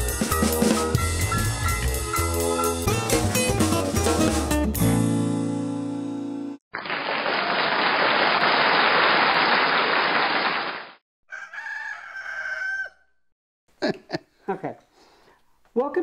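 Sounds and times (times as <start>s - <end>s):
theme music with drums: 0.0s - 5.2s.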